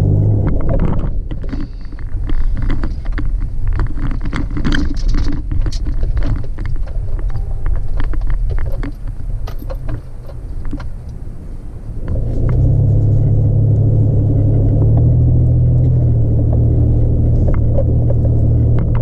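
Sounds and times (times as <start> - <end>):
engine and tyres rumbling: 0.0 - 19.0
cab clicks and rattles: 0.5 - 11.2.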